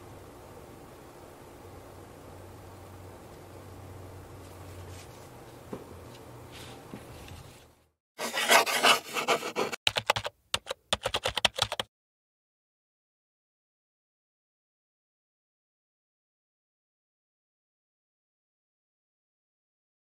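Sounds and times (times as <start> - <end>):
pen scribbling on paper: 8.2 - 10.0
typing clicks: 9.9 - 11.9.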